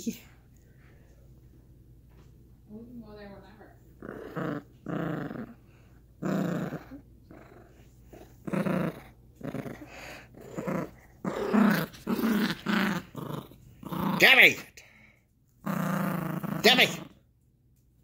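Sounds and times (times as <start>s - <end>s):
dog play-growling: 3.7s - 14.6s, 15.6s - 17.2s.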